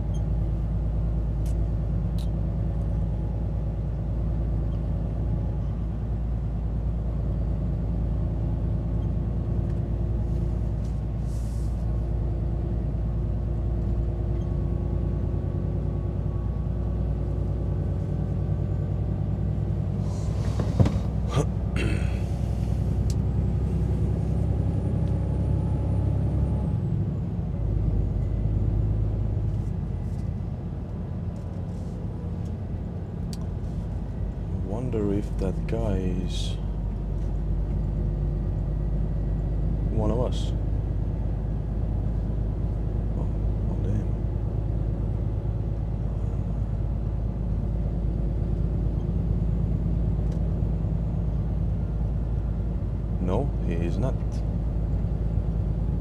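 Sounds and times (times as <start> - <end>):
diesel truck engine running: 0.0 - 56.0
air brake click and hiss: 11.2 - 11.9, 20.0 - 21.1.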